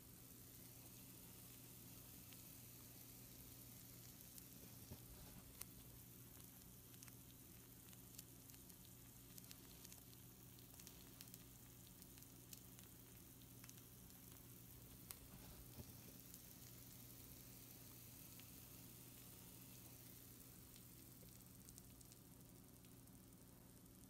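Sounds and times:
food sizzling on baking sheet: 0.0s - 24.0s
small crackles and pops: 0.0s - 24.0s
steady low hum: 0.0s - 24.0s.

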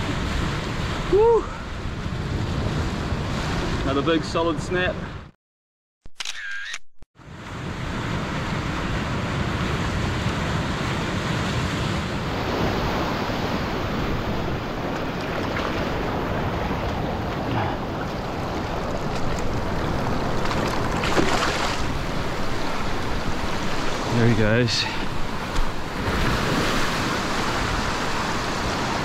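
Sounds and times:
surf washing over rocks: 7.4s - 29.0s
wave splash: 7.4s - 29.0s.

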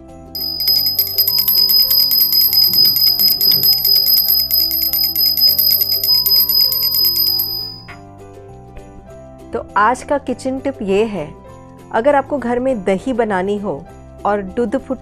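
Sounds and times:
brass hand bell ringing rapidly: 0.4s - 7.9s.

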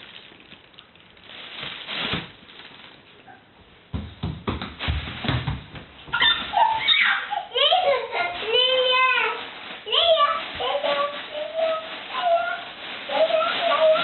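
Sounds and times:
plastic bag rustling: 0.0s - 3.4s, 4.8s - 14.0s
dull thumps and knocks: 3.9s - 6.5s
small child's voice: 6.1s - 14.0s.

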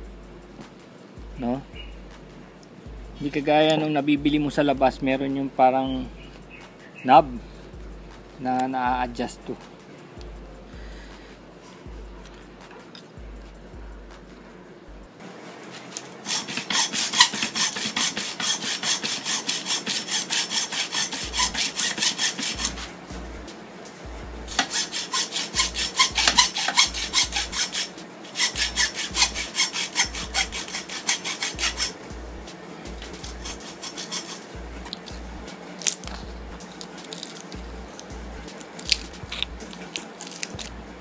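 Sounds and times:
hacksaw cutting copper: 16.0s - 23.0s, 24.5s - 40.8s.

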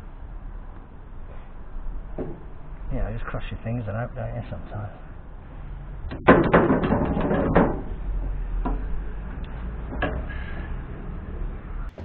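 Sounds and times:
clattering clicks and knocks: 6.1s - 8.0s, 8.6s - 10.3s.

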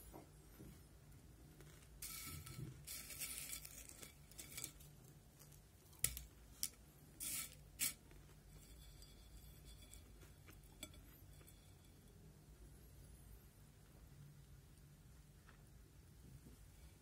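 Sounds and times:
rustling: 1.6s - 11.9s.

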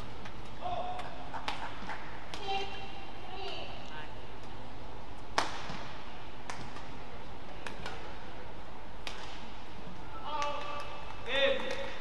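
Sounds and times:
hum of sports hall: 0.0s - 12.0s
racket striking shuttlecock: 9.0s - 9.5s.

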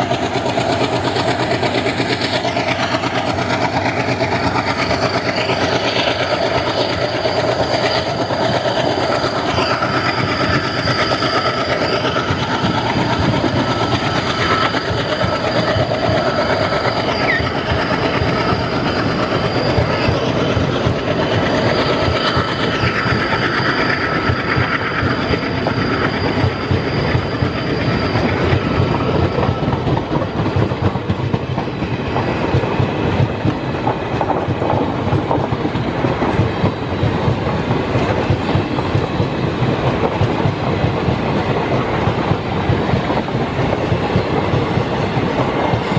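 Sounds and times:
train rolling roar: 0.0s - 45.9s
wheels clacking over rail joints: 0.0s - 45.9s
thin wheel squeal: 0.2s - 30.4s.

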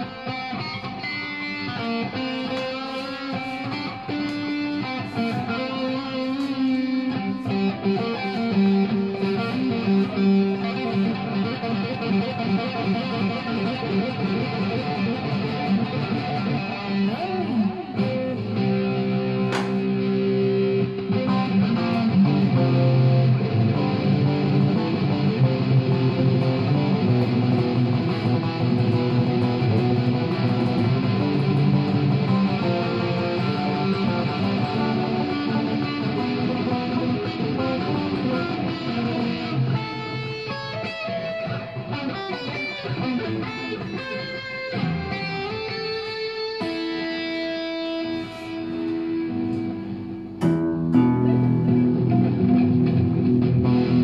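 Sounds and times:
electric guitar solo: 0.0s - 54.0s.

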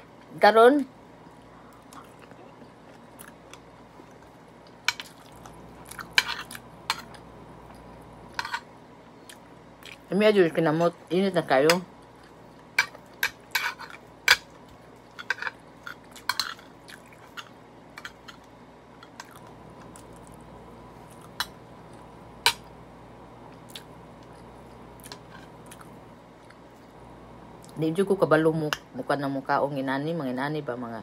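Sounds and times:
chewing: 1.7s - 8.1s, 12.0s - 22.1s, 23.5s - 26.9s.

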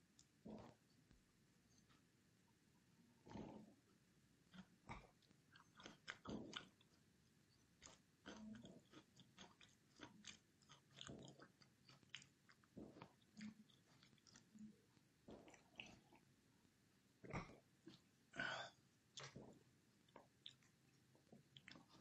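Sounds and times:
person chewing close up: 0.2s - 0.8s, 4.5s - 16.3s, 17.2s - 22.0s.

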